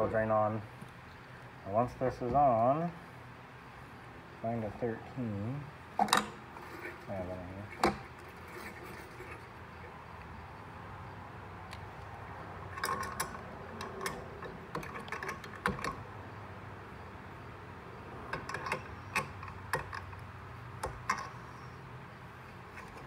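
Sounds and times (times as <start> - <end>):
metal nuts and wrench clinking: 12.7 - 16.0, 18.3 - 20.2, 20.8 - 21.5.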